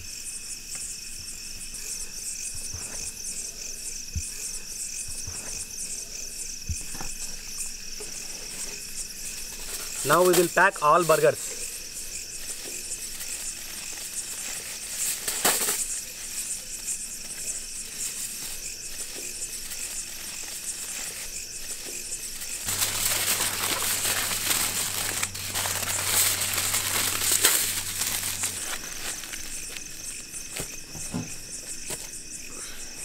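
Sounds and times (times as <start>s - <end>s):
crickets chirping: 0.0s - 33.0s
aluminium foil crinkling: 8.0s - 30.8s.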